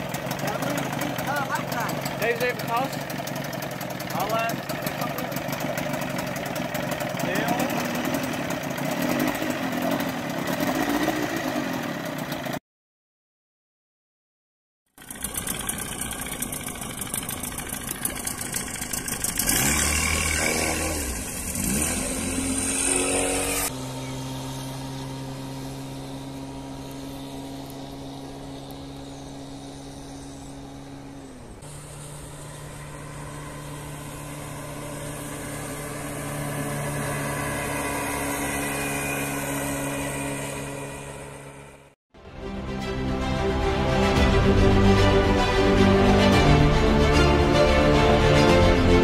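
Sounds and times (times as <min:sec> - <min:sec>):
outboard motor running: 0:00.0 - 0:12.6, 0:14.9 - 0:42.0.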